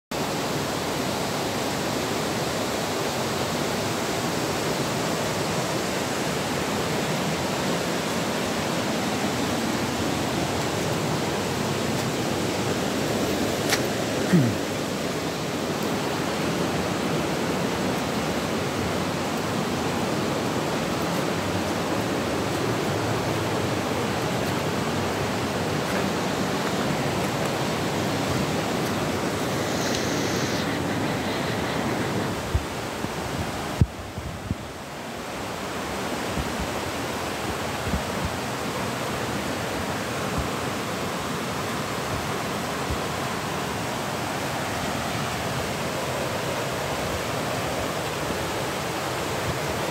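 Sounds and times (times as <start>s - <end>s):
stream rushing over rocks: 0.1s - 49.9s.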